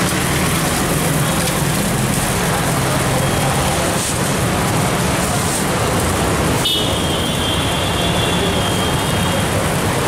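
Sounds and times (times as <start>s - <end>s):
griddle rumble and hiss: 0.0s - 6.6s.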